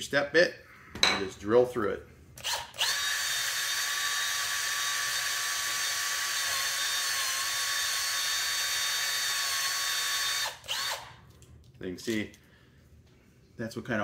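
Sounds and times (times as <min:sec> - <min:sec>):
cordless drill whining: 0:02.4 - 0:11.2.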